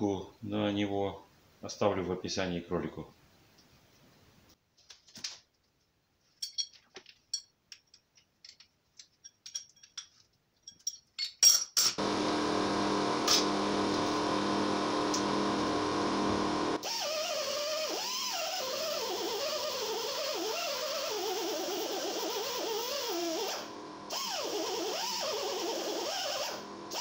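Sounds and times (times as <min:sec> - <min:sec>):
metallic clinks and clicks: 0:06.4 - 0:12.0
air grinder running with whine: 0:12.0 - 0:27.0.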